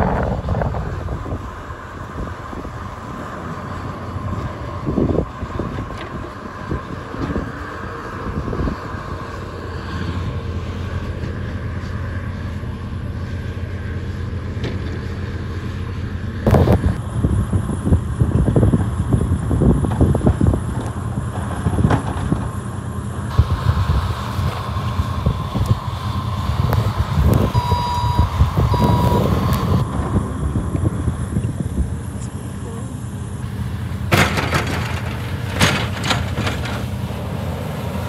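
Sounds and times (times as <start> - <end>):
wind buffeting microphone: 0.0 - 12.7, 16.4 - 22.7, 23.3 - 32.3
diesel engine under load: 0.0 - 38.0.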